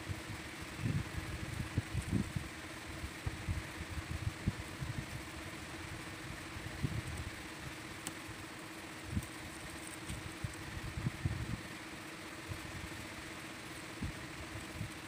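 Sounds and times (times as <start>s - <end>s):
air compressor humming: 0.0s - 15.0s.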